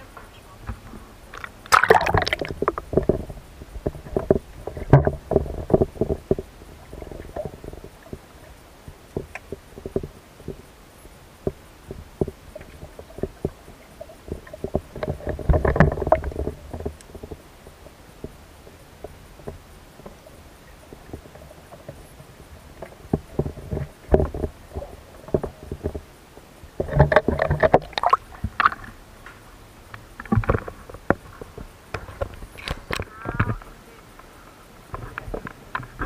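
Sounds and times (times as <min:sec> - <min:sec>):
low underwater rumble: 0:00.0 - 0:36.0
muffled underwater clicks and gurgles: 0:00.0 - 0:36.0.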